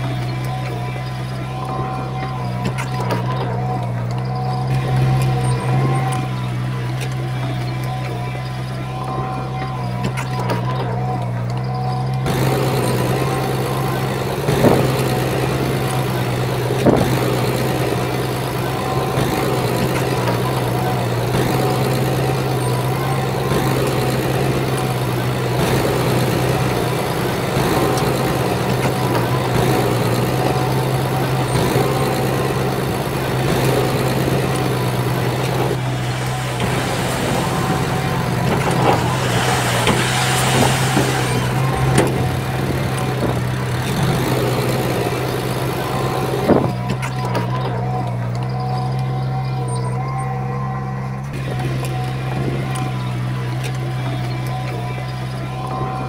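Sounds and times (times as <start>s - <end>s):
bulldozer diesel engine: 0.0s - 56.0s
rushing hiss: 35.8s - 43.0s.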